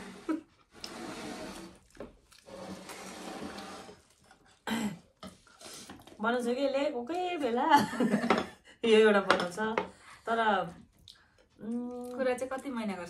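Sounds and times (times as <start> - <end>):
person slurping: 0.0 - 4.6.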